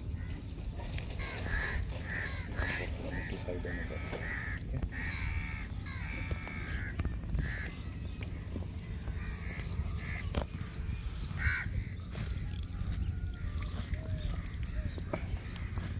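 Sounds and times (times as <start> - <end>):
crows cawing: 0.0 - 15.9
steady low rumble: 0.0 - 15.9.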